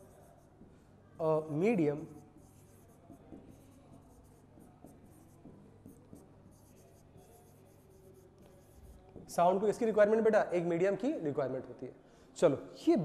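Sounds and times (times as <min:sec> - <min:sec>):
stylus scratching on a screen: 0:00.0 - 0:00.8, 0:01.4 - 0:09.6.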